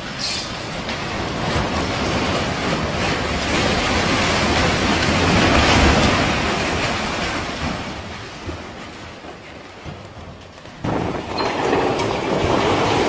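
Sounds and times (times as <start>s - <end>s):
strong storm wind gusting: 10.8s - 13.0s.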